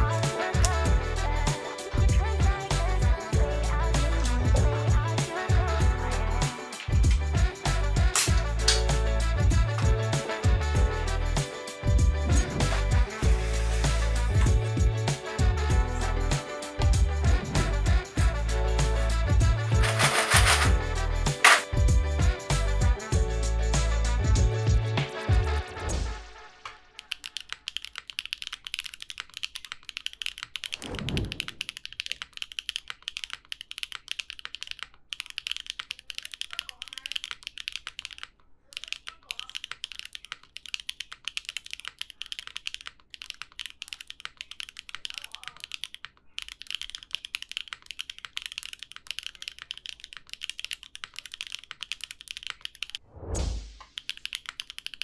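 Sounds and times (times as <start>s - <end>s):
fast typing on mechanical keyboard: 19.7s - 20.7s, 21.4s - 21.7s, 27.0s - 53.0s, 54.0s - 55.0s.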